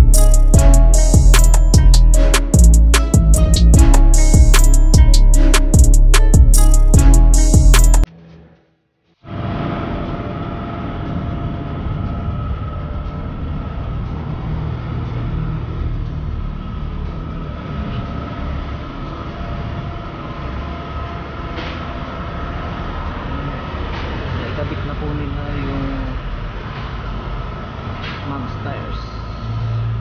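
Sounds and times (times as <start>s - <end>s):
low workshop rumble: 8.0s - 30.0s.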